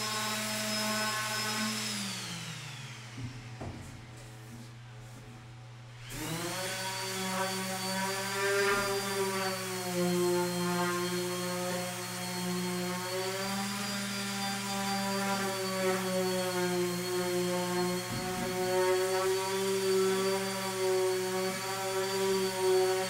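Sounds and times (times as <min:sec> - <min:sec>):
electric sander running on wood: 0:00.0 - 0:03.9, 0:06.0 - 0:23.0.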